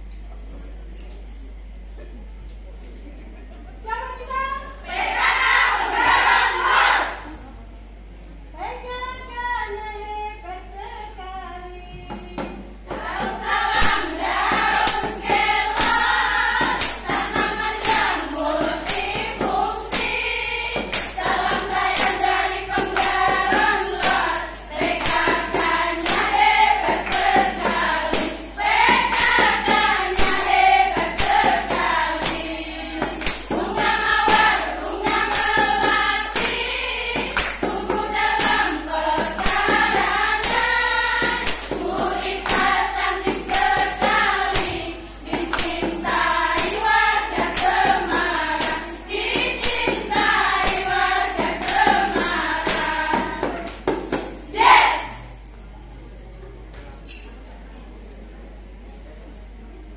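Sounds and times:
women's choir singing: 4.8 - 7.5, 12.9 - 55.5
tambourine beat: 12.1 - 55.8
hands clapping: 13.8 - 18.2, 22.8 - 24.3, 25.0 - 25.4, 26.0 - 30.5, 32.2 - 36.6, 37.3 - 38.7, 42.4 - 46.8, 51.5 - 54.5.

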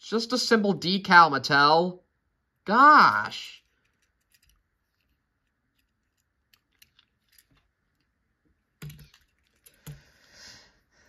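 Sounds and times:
toy cars clicking: 3.1 - 8.1.

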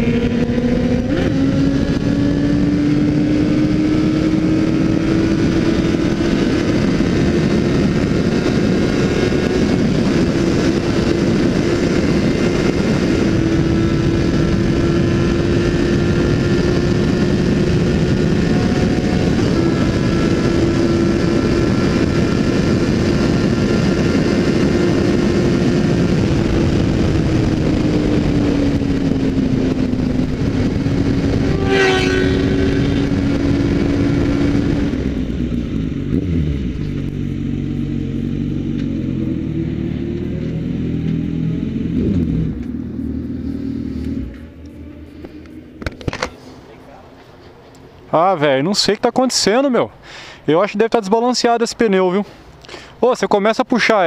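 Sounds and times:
wind rush on microphone: 0.0 - 38.5
motorcycle engine at high revs: 0.0 - 46.4.

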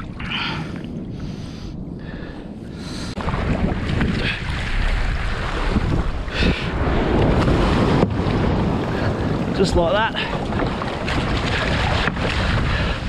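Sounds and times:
wind rushing over microphone: 0.0 - 13.0
water sloshing against kayak: 2.8 - 13.0.

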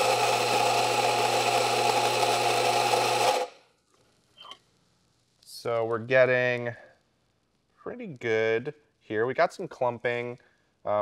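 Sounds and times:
grinder motor spinning down: 0.0 - 3.5
coffee grinder grinding beans: 0.0 - 4.5.

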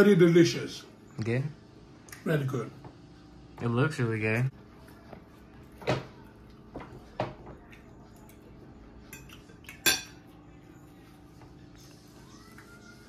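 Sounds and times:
utensils clinking on plates: 9.0 - 10.4.

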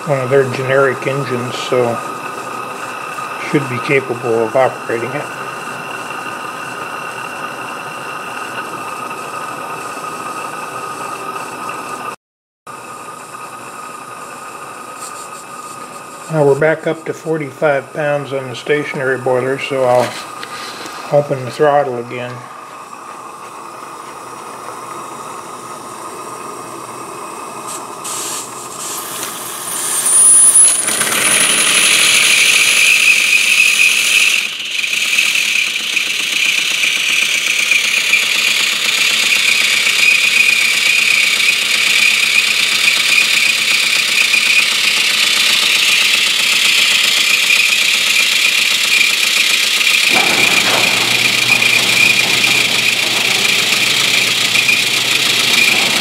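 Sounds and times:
steam hissing: 0.0 - 12.1, 12.8 - 56.0
model steam engine running: 0.0 - 56.0
thin high squeal: 28.1 - 37.0, 46.8 - 56.0.

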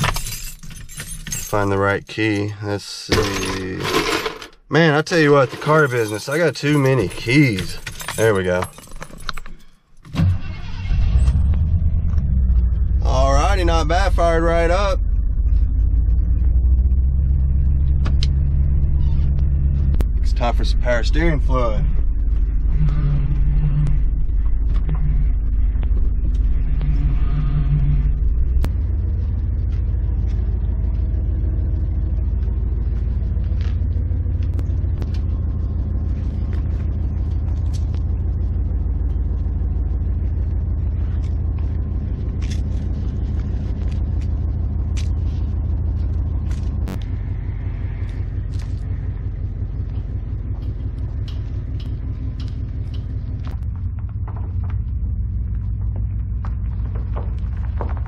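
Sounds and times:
truck engine idling: 10.3 - 58.0
low groan: 11.2 - 29.6.

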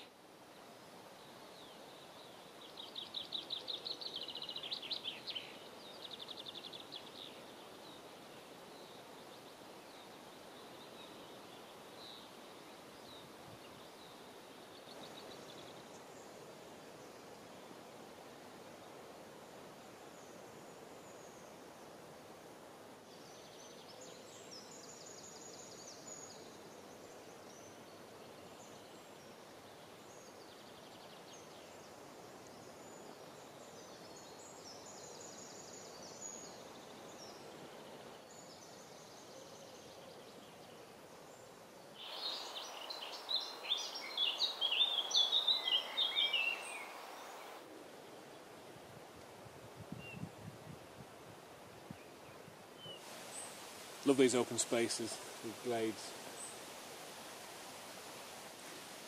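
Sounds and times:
faint high bird calls: 42.0 - 47.6.

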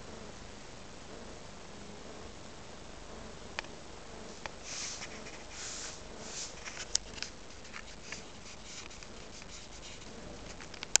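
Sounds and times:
camera handling rubbing: 4.7 - 11.0.

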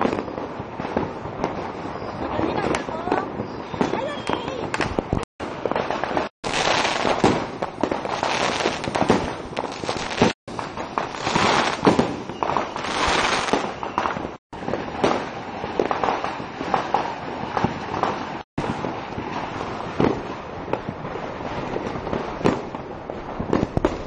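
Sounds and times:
firecracker pops: 0.0 - 1.7, 2.3 - 14.4, 20.0 - 20.9, 23.4 - 24.0
firework fountain hissing crackle: 0.0 - 24.0.

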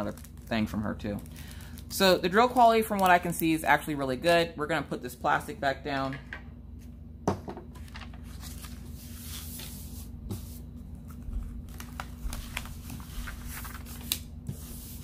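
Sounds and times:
plastic sheet crinkling: 11.2 - 15.0.

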